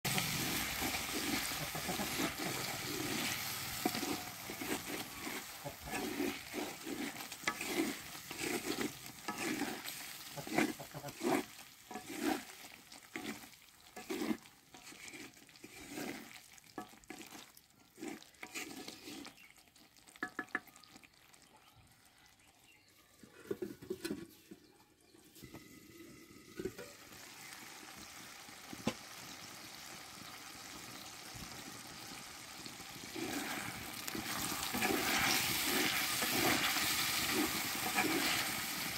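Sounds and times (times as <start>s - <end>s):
curry sizzling: 0.0s - 38.9s
wooden spatula scraping pot: 0.1s - 20.7s, 23.2s - 27.0s, 33.0s - 38.9s.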